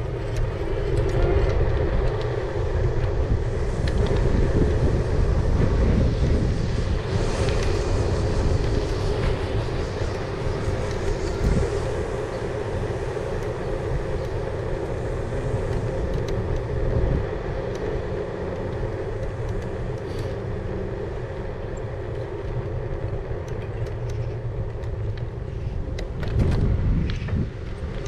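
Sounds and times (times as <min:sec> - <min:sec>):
electric bike motor hum: 0:00.0 - 0:28.0.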